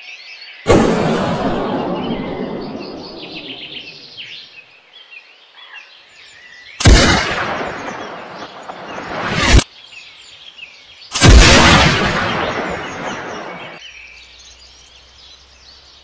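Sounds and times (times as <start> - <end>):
gunshot with rolling echo: 0.7 - 4.2, 6.8 - 9.6, 11.2 - 13.8
small birds chirping: 1.6 - 11.2, 12.0 - 16.0.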